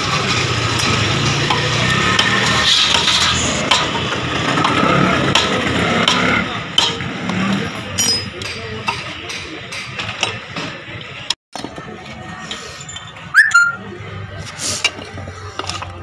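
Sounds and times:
metal parts and tools clinking: 0.7s - 1.0s, 8.0s - 8.5s
rising whistle-like chirp: 13.4s - 13.8s.

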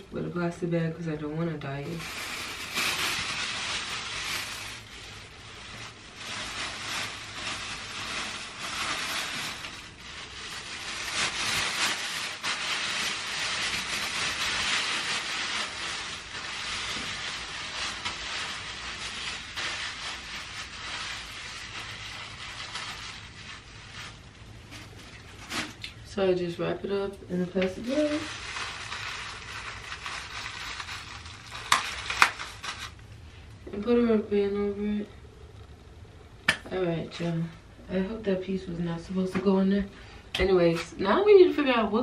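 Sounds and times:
plastic bag crinkling: 1.6s - 26.1s, 27.4s - 33.9s.

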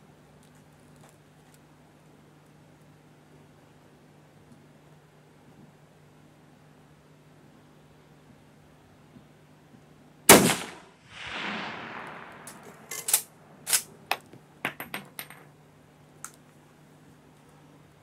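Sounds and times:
rifle shot with rolling echo: 10.3s - 13.9s
rifle bolt metallic clicks: 11.9s - 14.3s.

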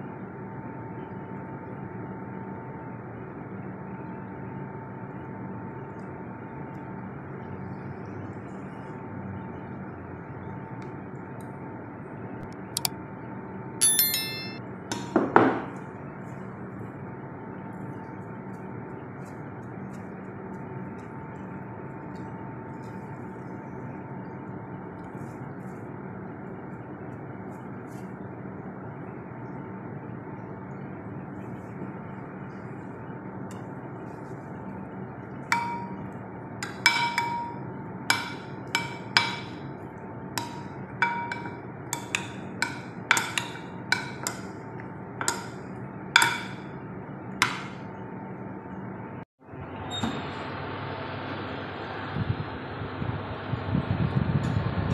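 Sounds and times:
kitchenware clinking: 13.8s - 14.6s.

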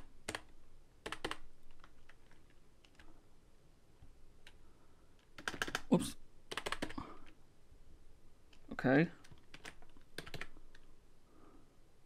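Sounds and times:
typing on computer keyboard: 0.0s - 3.1s, 5.2s - 5.9s, 6.5s - 7.4s, 9.2s - 10.9s.

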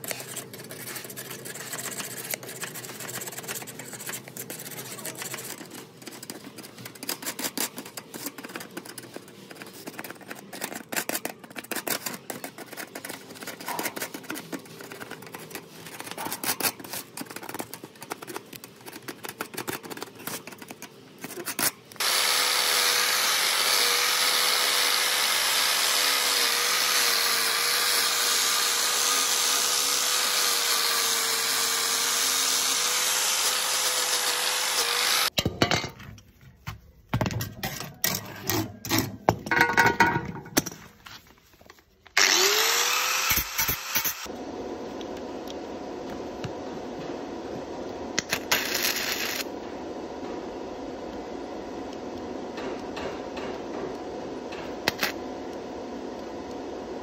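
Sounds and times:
metal scraper scraping wire bars: 0.0s - 22.0s
power tool whining: 22.0s - 35.3s, 42.2s - 44.3s.

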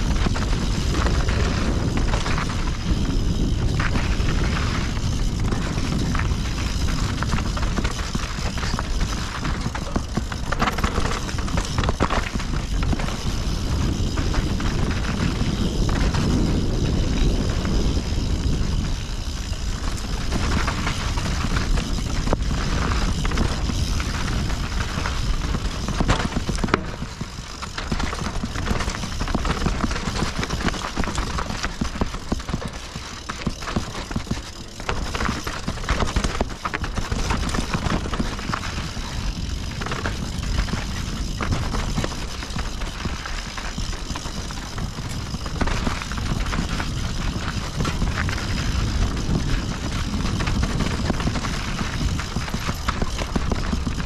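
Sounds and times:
bike rattling over rocks: 0.0s - 54.0s
rush of rolling tyres and air: 0.0s - 54.0s.

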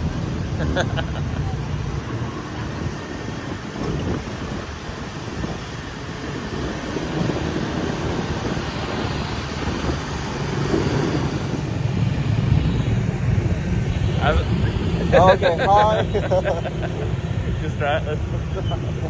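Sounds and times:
wind buffeting microphone: 0.0s - 15.2s
scooter engine and tyres hum: 0.0s - 19.0s.

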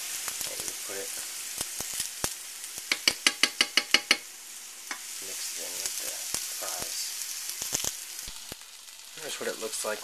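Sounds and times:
fries sizzling in a frying pan: 0.0s - 10.0s
metal fork clicking on pan: 2.9s - 4.3s.

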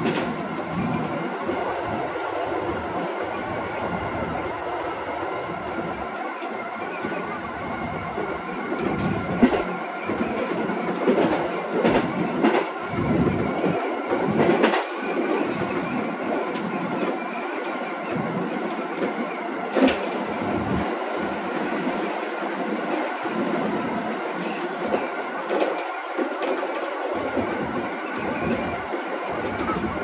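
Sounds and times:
train running on track: 0.0s - 30.0s.

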